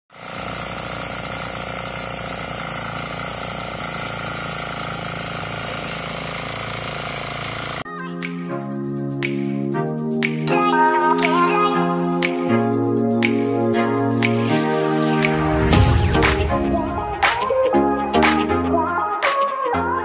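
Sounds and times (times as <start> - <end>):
tiller engine running: 0.1 - 7.9, 10.8 - 18.2
music: 7.9 - 20.0.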